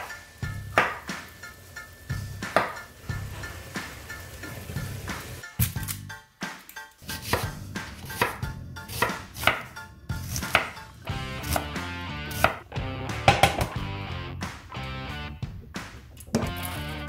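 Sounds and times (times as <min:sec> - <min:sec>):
knife chopping on wooden board: 0:00.8 - 0:01.1, 0:02.5 - 0:02.8, 0:07.1 - 0:10.8, 0:11.4 - 0:12.6.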